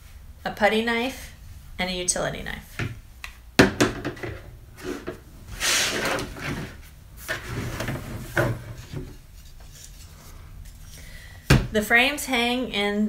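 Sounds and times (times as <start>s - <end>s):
tools knocking on tabletop: 3.6s - 4.4s
sliding rustle: 4.8s - 11.0s.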